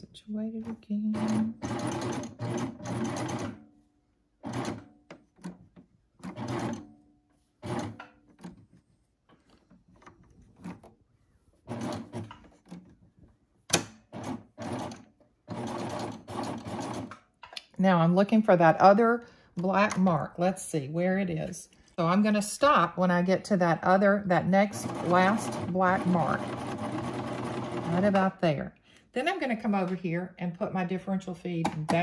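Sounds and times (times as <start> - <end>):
serger machine stitching: 1.1 - 3.6, 6.2 - 6.8, 7.6 - 8.5, 11.7 - 12.8, 13.8 - 17.2, 24.7 - 28.2.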